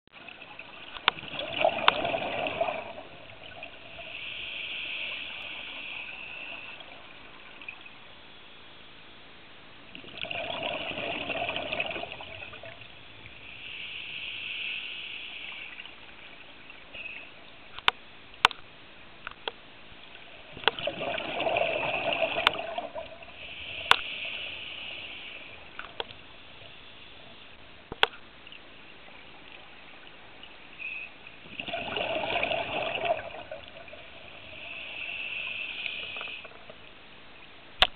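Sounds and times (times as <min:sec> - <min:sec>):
regulator breathing bubbles: 0:30.8 - 0:36.5.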